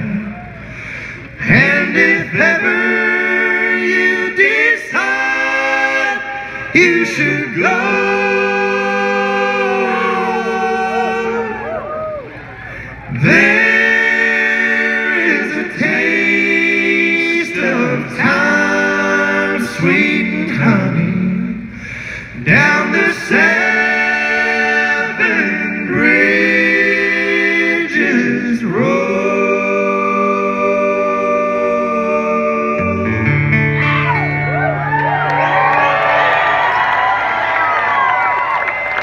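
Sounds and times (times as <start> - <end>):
men singing close harmony: 1.4 - 11.7, 13.2 - 21.6, 22.4 - 33.3.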